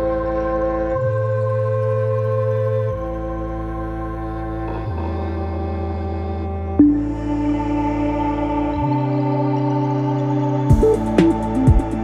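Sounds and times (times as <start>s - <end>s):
ambient synthesizer chord: 0.0s - 12.0s
beat with bass line: 10.7s - 12.0s.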